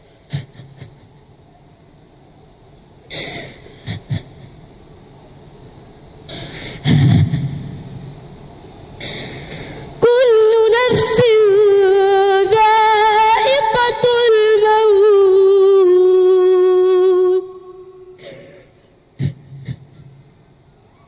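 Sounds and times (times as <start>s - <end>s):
quick breath in: 9.0s - 10.0s, 18.2s - 19.0s.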